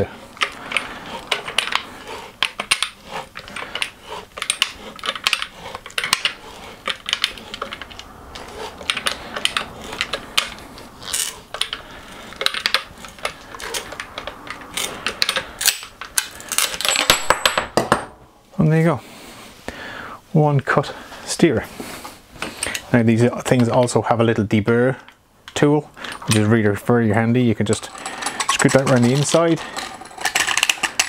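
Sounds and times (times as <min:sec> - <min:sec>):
pipe cutter scraping metal tube: 0:00.0 - 0:17.0, 0:27.7 - 0:31.0.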